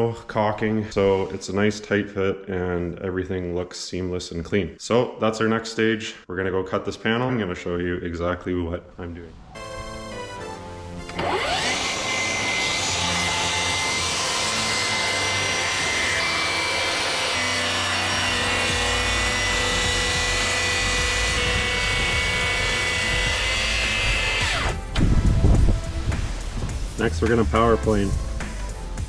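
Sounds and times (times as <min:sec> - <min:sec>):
power saw cutting wood: 0:11.0 - 0:25.1.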